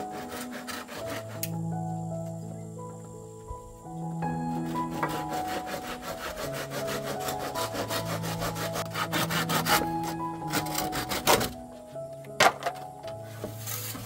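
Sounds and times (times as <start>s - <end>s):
hand saw cutting wood: 0.0s - 1.6s, 4.5s - 11.6s
background music: 0.0s - 14.0s.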